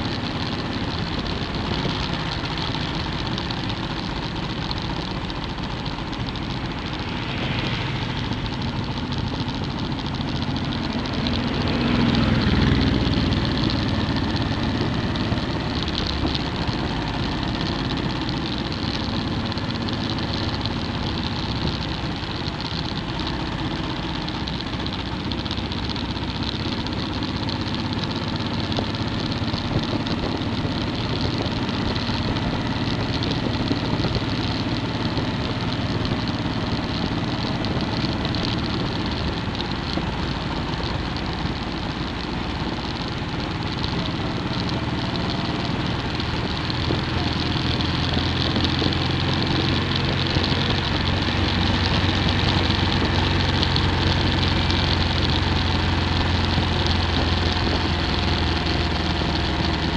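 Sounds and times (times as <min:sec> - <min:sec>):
motorcycle engine cruising: 0:00.0 - 0:59.9
wind rush on microphone: 0:28.0 - 0:59.9.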